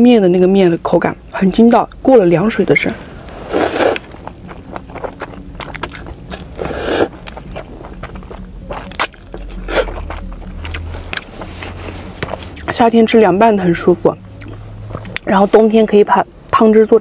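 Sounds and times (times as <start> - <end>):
wet noodle slurps: 3.3 - 7.4
chewing: 3.5 - 12.8, 14.3 - 15.3.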